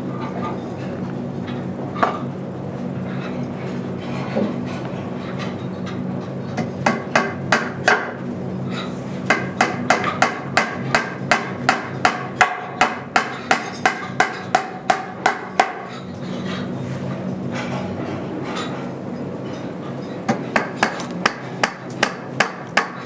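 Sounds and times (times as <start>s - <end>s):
steady low hum: 0.0s - 23.0s
hammer striking metal: 6.8s - 8.2s, 9.3s - 15.9s.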